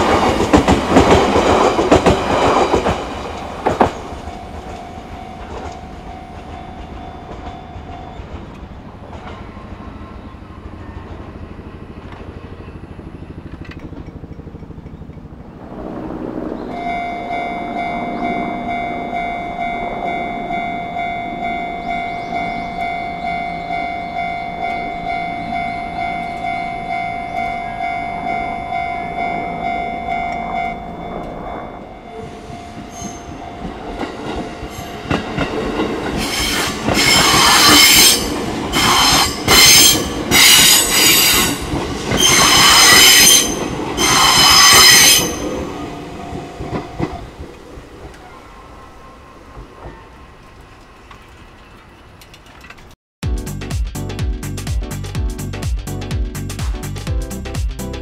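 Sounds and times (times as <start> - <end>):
electric train passing: 0.0 - 52.8
level crossing alarm dinging: 4.1 - 8.4, 16.7 - 36.2
high metallic screeching: 25.4 - 33.7, 36.2 - 46.3.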